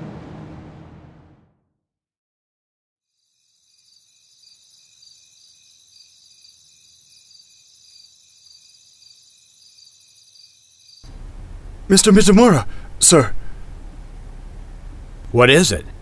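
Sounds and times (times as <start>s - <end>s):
crickets chirring: 3.1s - 11.1s.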